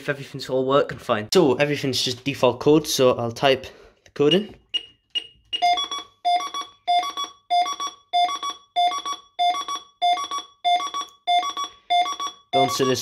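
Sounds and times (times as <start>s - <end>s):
alarm panel beeping: 4.3s - 13.0s.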